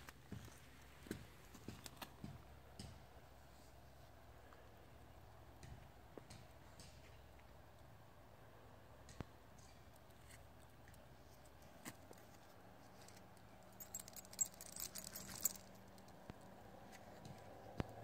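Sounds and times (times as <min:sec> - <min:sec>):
small metal pieces jingling: 0:13.6 - 0:16.1.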